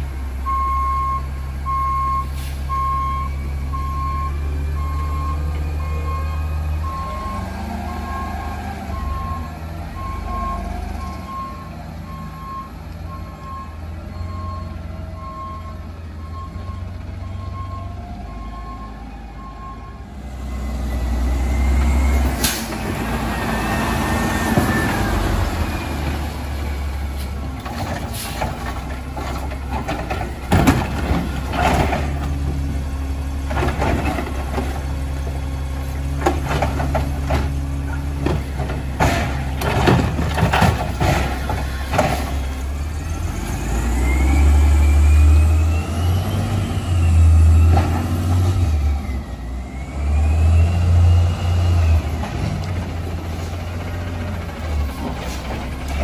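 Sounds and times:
bins banging and clattering: 27.3 - 35.2, 36.0 - 42.6.

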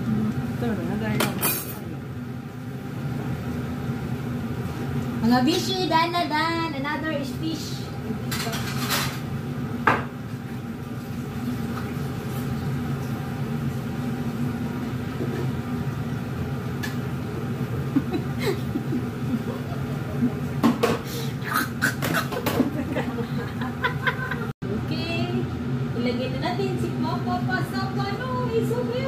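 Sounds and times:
range hood fan hum: 0.0 - 29.0
pans or dishes clinking: 8.3 - 9.3.

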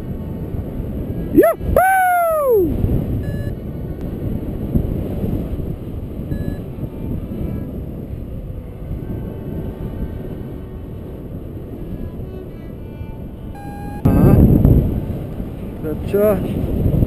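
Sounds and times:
wind rushing over microphone: 0.0 - 17.0
faint short beeps: 3.2 - 3.6, 6.3 - 6.7, 13.5 - 14.2.

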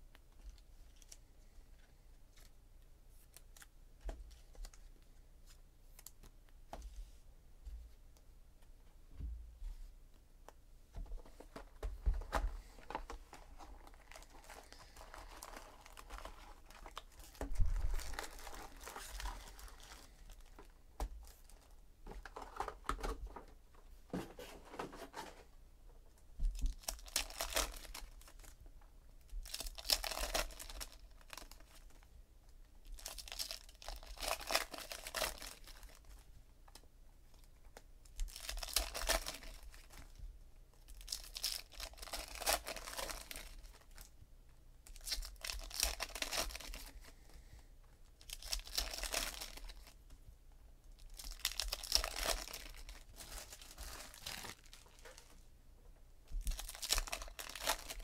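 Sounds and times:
wrappers crinkling: 12.6 - 21.8, 26.6 - 28.6, 29.4 - 32.0, 32.8 - 36.2, 38.1 - 40.2, 40.8 - 44.1, 44.9 - 47.0, 48.2 - 50.0, 51.0 - 55.3, 56.4 - 58.0
foil packs tearing open: 51.2 - 54.8, 56.5 - 58.0.

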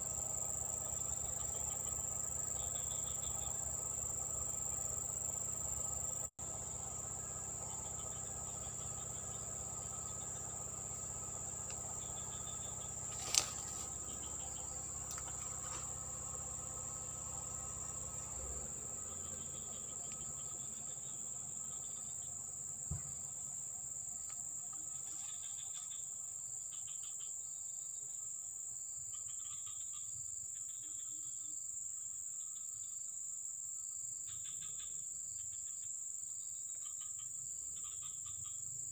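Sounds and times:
insects chirping in trills: 0.0 - 38.9
insects droning high-pitched: 0.0 - 38.9
low thump: 22.9 - 23.3.

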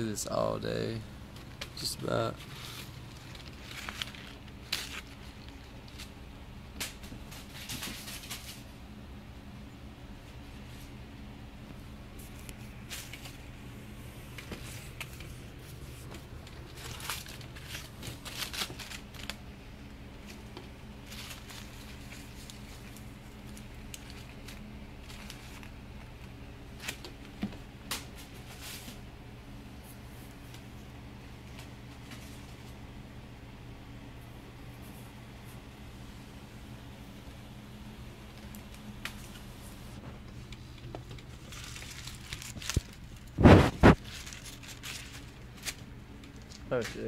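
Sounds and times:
low steady hum: 0.0 - 47.0
paper ball crinkling: 1.4 - 6.2, 14.3 - 29.0, 40.4 - 47.0.

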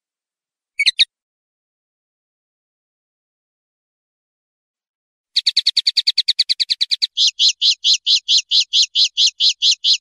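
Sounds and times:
bird singing trills: 0.8 - 1.1, 5.4 - 10.0.

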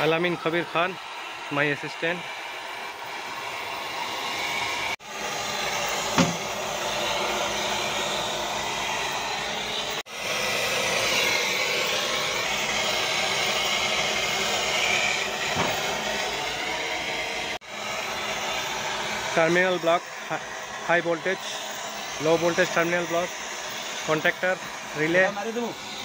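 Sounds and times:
torch flame hissing: 0.0 - 26.0
sharp knock: 6.2 - 6.4.

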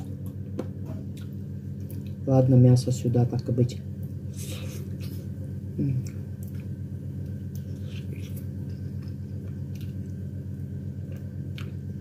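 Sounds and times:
steady low hum: 0.0 - 12.0
person chewing meat off bone: 6.0 - 12.0.

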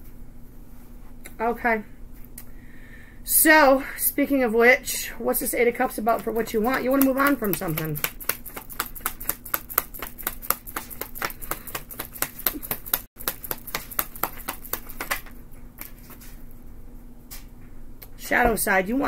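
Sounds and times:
cards being shuffled: 6.2 - 16.4.

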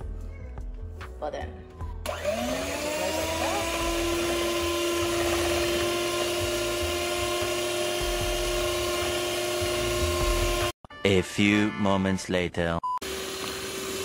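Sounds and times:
electric hand mixer whining: 2.0 - 10.7, 13.0 - 14.0
beaters whisking in metal bowl: 2.1 - 10.7.

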